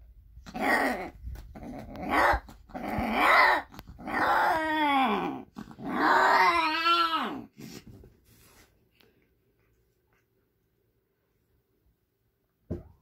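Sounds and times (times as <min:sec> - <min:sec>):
cat yowling: 0:03.1 - 0:07.5.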